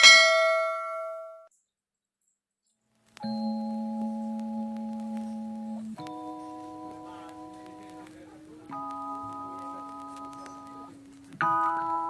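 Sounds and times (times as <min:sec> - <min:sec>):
bell-like chord music: 0:03.2 - 0:12.0.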